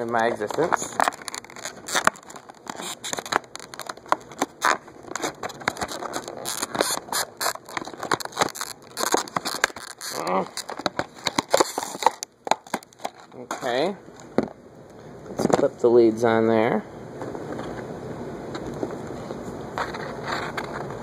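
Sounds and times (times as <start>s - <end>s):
packaging crackling and crinkling: 0.0s - 14.5s.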